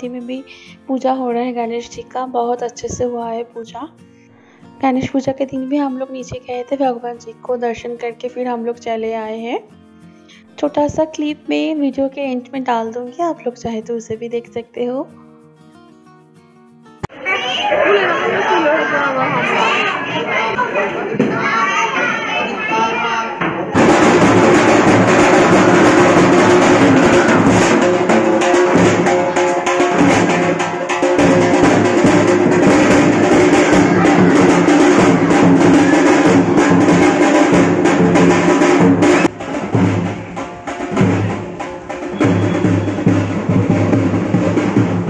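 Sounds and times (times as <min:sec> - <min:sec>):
loud drums beaten with sticks: 0:23.4 - 0:45.0.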